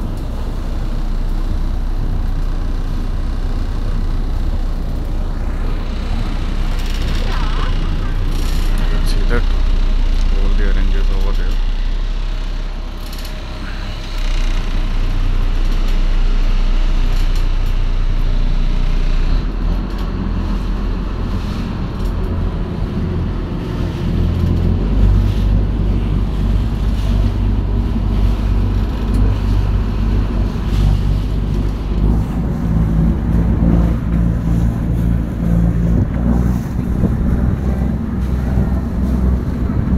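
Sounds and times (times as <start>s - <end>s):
boat engine droning: 0.0s - 39.9s
water washing along hull: 0.0s - 39.9s
wind on microphone: 20.1s - 39.9s.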